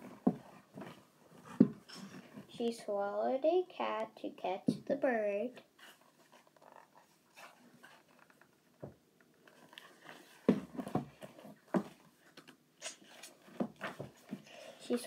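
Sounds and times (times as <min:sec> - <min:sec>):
paper pages rustling: 0:09.4 - 0:14.3.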